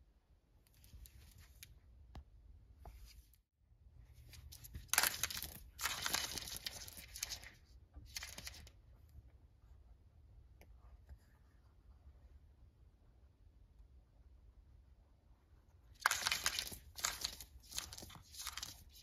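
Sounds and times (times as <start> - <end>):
rabbit claws scratching on wood floor: 16.0 - 19.0.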